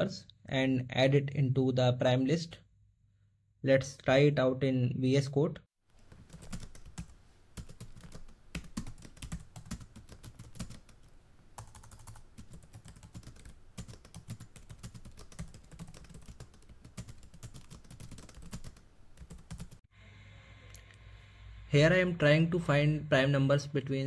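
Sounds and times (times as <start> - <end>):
computer keyboard typing: 6.3 - 11.0, 11.6 - 19.8.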